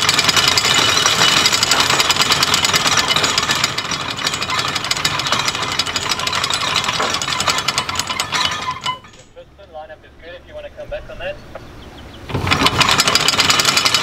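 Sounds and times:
anchor chain rattling: 0.0s - 9.4s, 12.3s - 14.0s.

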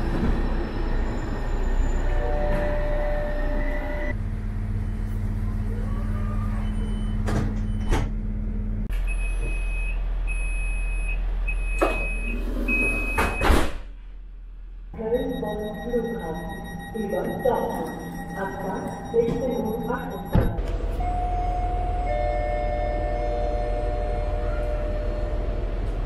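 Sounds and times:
train hum: 0.0s - 6.6s, 14.0s - 26.0s
door warning beep: 9.0s - 13.6s, 15.0s - 23.6s.

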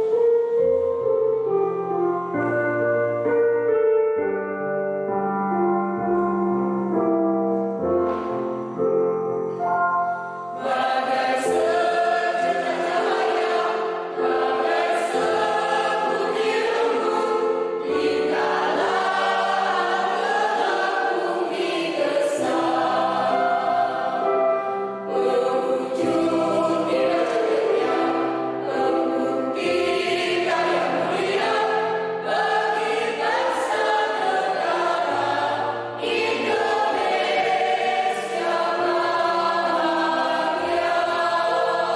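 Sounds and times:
mixed choir singing: 10.4s - 41.9s.

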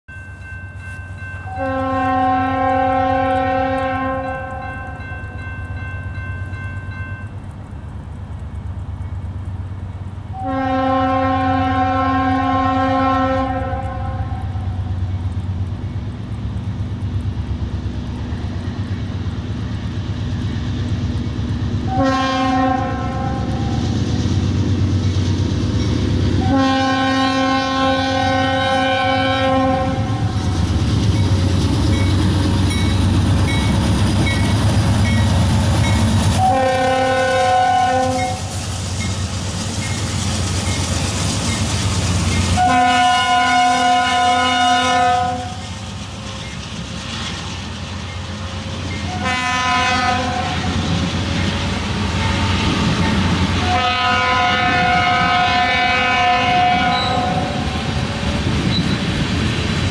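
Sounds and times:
train rumble: 0.1s - 59.9s
train air horn blasts: 1.4s - 5.1s, 10.3s - 14.8s, 21.8s - 23.8s, 26.4s - 30.4s, 36.3s - 38.5s, 42.5s - 45.6s, 49.1s - 50.7s, 52.2s - 58.4s.

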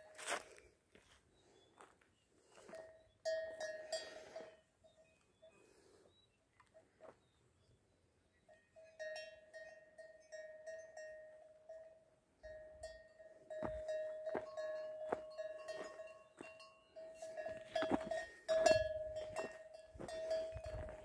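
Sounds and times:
cowbell clanking: 2.7s - 5.2s, 8.4s - 21.0s.

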